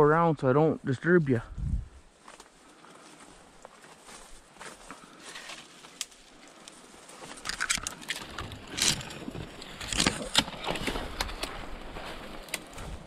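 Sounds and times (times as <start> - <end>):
footsteps through brush: 1.5 - 9.8, 10.6 - 13.0
branches rustling and snapping: 3.2 - 13.0.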